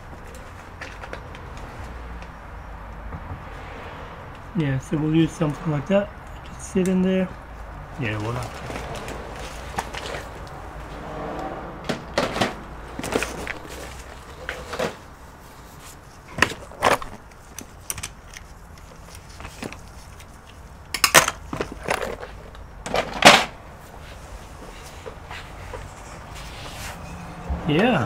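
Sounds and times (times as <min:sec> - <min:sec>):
hand tools knocking and clicking: 0:20.9 - 0:21.8
tools clattering: 0:20.9 - 0:23.6.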